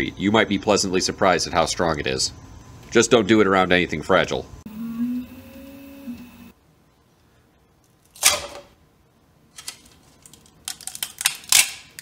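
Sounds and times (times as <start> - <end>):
printer stepper motors humming: 4.7 - 6.5
sharp plastic clack: 9.6 - 12.0.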